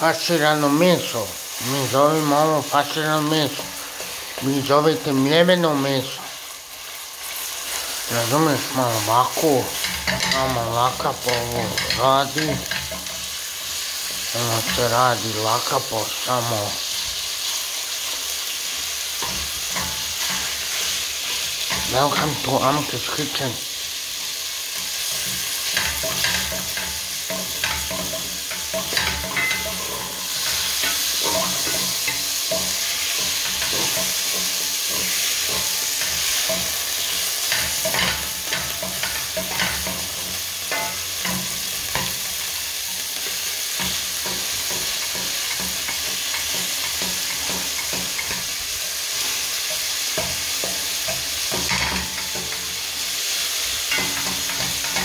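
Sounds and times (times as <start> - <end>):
meat sizzling in hot oil: 0.0 - 55.0
wooden spatula scraping a pot: 24.6 - 42.5.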